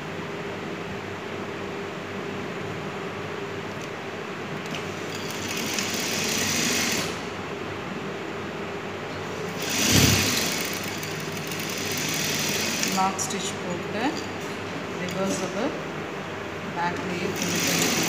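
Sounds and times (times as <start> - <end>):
sewing machine stitching: 4.6 - 7.2, 9.5 - 13.1, 17.3 - 18.0
sewing machine humming: 4.6 - 7.4, 9.4 - 13.7, 17.0 - 18.0.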